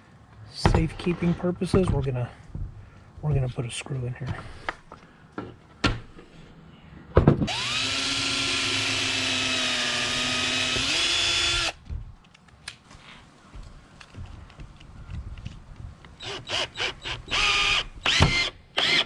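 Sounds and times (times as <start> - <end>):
cordless drill driving screw: 7.5 - 11.8, 16.2 - 19.0.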